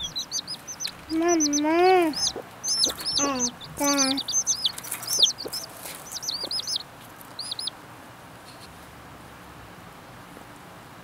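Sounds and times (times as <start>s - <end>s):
chicks peeping: 0.0s - 7.8s.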